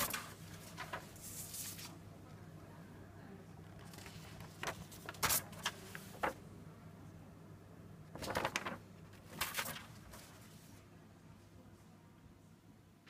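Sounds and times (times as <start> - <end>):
paper rustling and scraping: 0.0 - 2.0, 3.8 - 6.4, 8.2 - 10.8.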